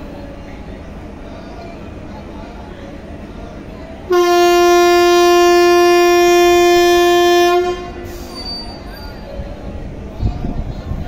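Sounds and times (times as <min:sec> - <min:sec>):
locomotive horn blast: 0:04.1 - 0:08.4.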